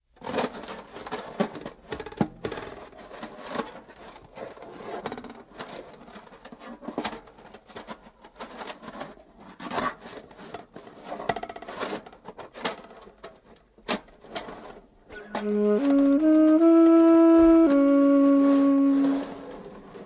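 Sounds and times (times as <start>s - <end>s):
free-improvised jazz: 15.1s - 19.5s.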